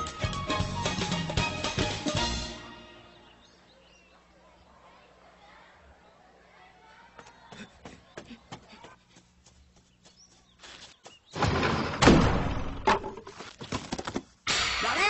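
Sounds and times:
door slamming open with rattle: 11.4 - 13.2.

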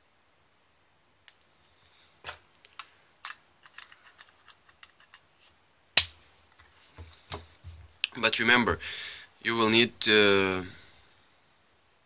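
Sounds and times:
loud plastic snap: 6.0 - 6.2.

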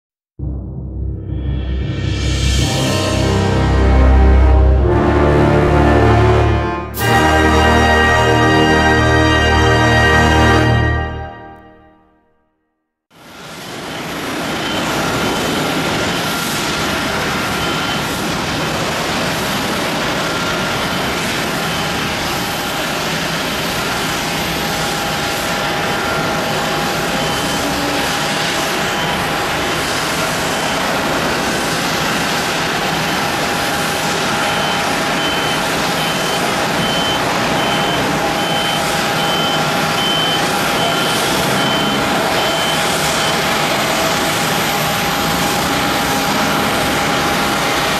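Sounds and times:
jet engines roaring: 13.2 - 47.9
high beep: 17.6 - 18.0, 26.2 - 28.1, 34.4 - 43.8.

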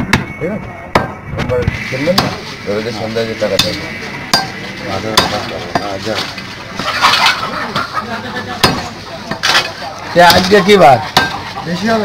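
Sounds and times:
cleaver chopping meat on wood: 0.9 - 1.2, 8.6 - 9.4.

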